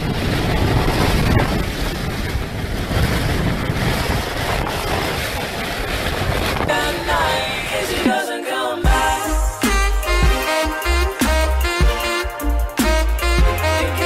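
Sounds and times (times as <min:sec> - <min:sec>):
driving rain: 0:00.0 - 0:08.0
wind buffeting on microphone: 0:00.0 - 0:08.1
hurricane-force wind: 0:00.0 - 0:08.3.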